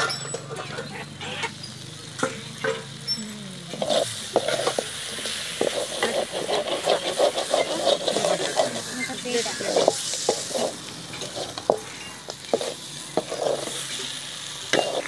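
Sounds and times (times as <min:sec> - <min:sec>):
metal clinks: 0:00.0 - 0:00.9
metal ladle scraping pot: 0:00.0 - 0:13.9, 0:14.7 - 0:15.0
meat sizzling in a pot: 0:00.0 - 0:15.0.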